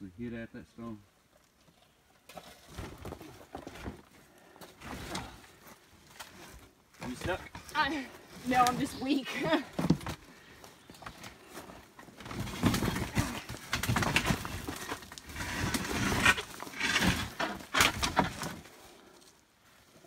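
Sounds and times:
wood scraping against stone: 12.1 - 18.8.

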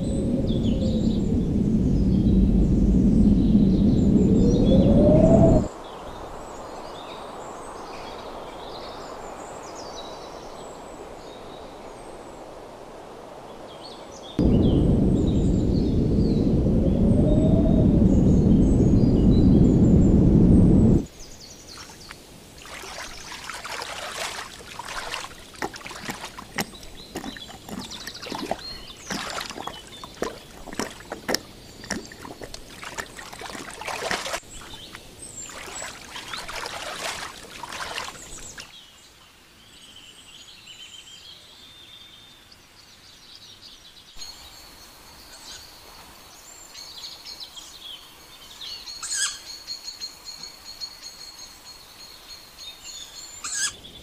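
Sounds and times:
small birds chirping: 14.4 - 38.9
water splashing and sloshing: 21.7 - 38.8.

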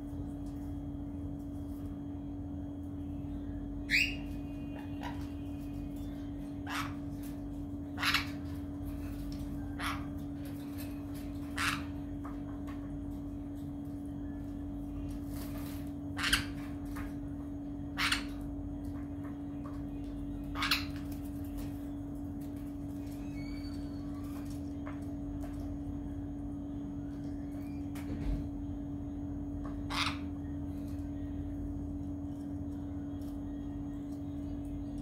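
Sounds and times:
steady low hum: 0.0 - 35.0
parrot squawking: 3.9 - 5.3, 6.6 - 7.1, 7.9 - 8.6, 9.7 - 10.2, 11.4 - 12.0, 17.9 - 18.4, 20.5 - 21.1, 29.9 - 30.3.

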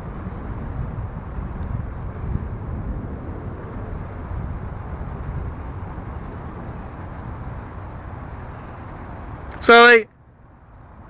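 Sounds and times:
wind noise on microphone: 0.0 - 11.0
faint bird chirps: 5.6 - 6.4.

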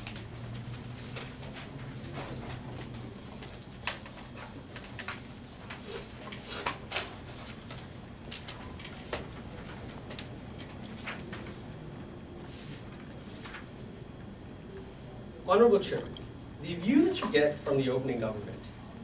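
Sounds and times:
papers clicking and rustling: 0.0 - 11.7
steady low hum: 0.0 - 19.0.

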